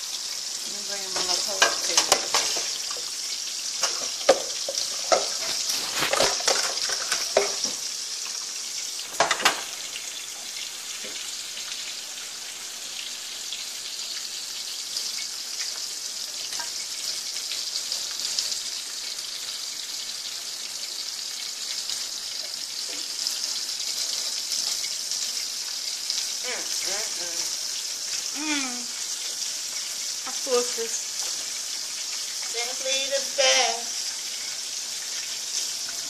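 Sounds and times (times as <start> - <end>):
meat sizzling in oil: 0.0 - 36.0
knocks and paper rustles: 5.1 - 7.8.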